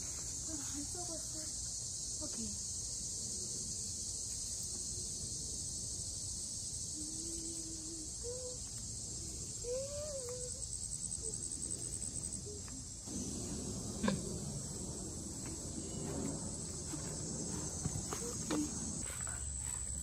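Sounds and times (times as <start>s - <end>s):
fast pulsing insect trill: 0.0s - 20.0s
insects buzzing: 0.0s - 20.0s
low rumble: 13.1s - 19.0s.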